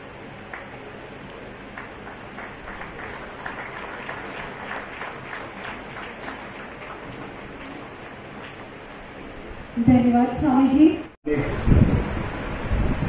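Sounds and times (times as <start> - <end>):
audience applauding: 0.4 - 9.0.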